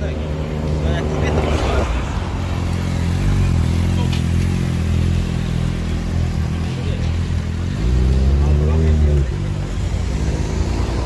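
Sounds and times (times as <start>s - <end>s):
motorcycle engines at low revs: 0.0s - 11.0s.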